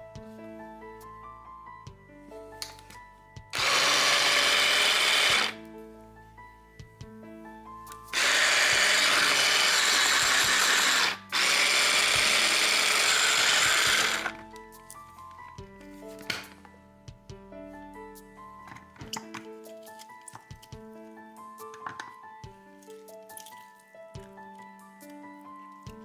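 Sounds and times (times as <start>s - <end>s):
electric food chopper running: 3.5s - 5.6s, 8.1s - 14.4s.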